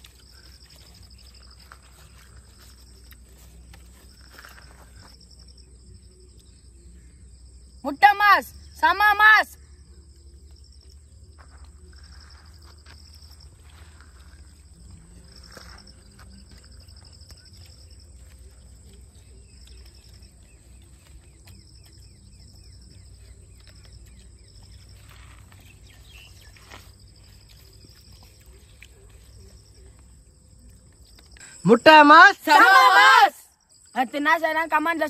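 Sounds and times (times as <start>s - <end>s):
insects trilling: 0.0s - 35.0s.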